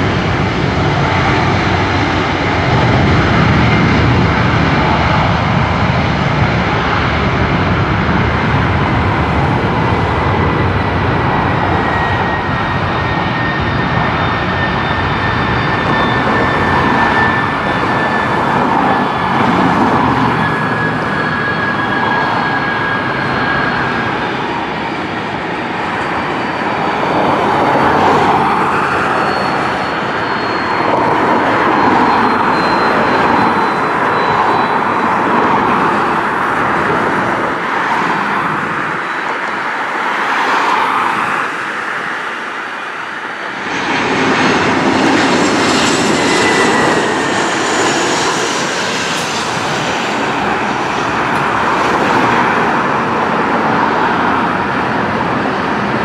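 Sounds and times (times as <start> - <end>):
jet engines rumbling and whining: 0.0 - 56.0
road traffic: 0.0 - 56.0.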